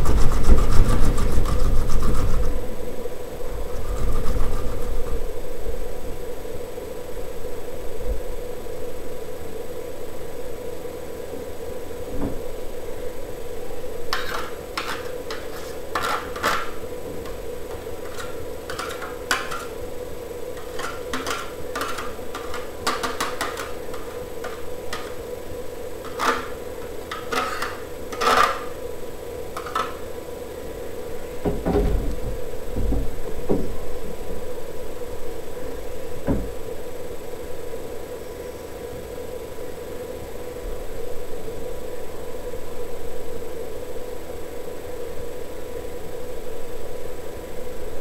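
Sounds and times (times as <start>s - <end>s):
onion rasping on metal grater: 0.0s - 2.6s, 14.2s - 19.8s.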